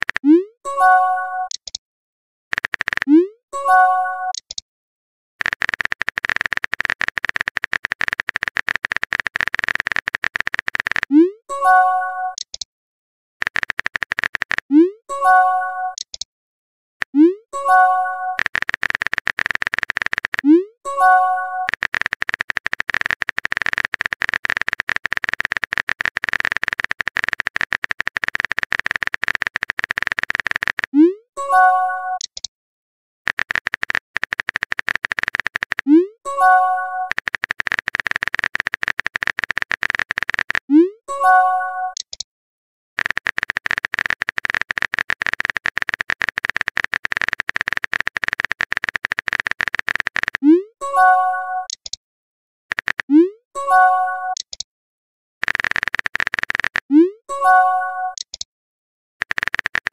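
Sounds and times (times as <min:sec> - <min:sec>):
phone keyboard key clicks: 0:02.6 - 0:03.1, 0:05.4 - 0:11.1, 0:13.4 - 0:14.7, 0:18.4 - 0:20.4, 0:21.7 - 0:30.9, 0:33.3 - 0:35.9, 0:37.1 - 0:40.6, 0:43.0 - 0:50.4, 0:52.7 - 0:53.1, 0:55.4 - 0:56.9, 0:59.2 - 0:59.9.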